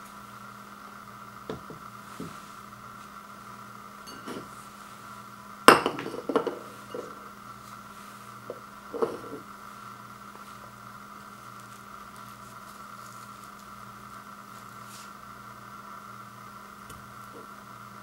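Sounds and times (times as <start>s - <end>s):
bowl and spoon clattering: 4.1s - 4.5s
tableware knocks and clinks: 4.1s - 4.5s, 5.7s - 7.1s, 9.0s - 9.4s.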